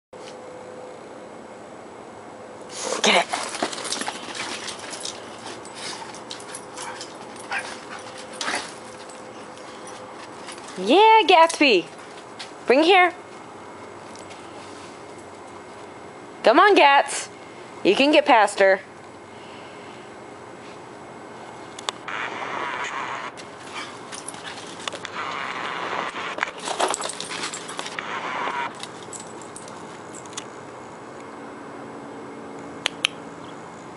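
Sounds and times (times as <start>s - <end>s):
dogs scuffling in play: 2.7s - 12.6s, 23.4s - 25.6s, 26.3s - 28.0s
collars jingling: 3.0s - 12.8s, 23.4s - 25.0s, 26.5s - 28.0s, 28.8s - 30.4s.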